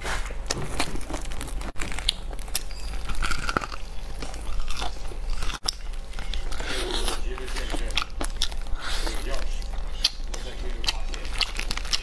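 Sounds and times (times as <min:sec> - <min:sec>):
crunching fried chicken: 0:00.0 - 0:12.0.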